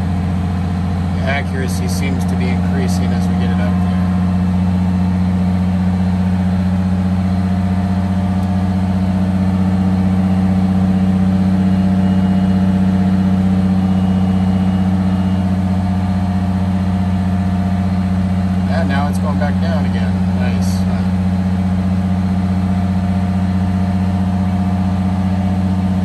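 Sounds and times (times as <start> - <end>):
bus engine idling: 0.0 - 26.0.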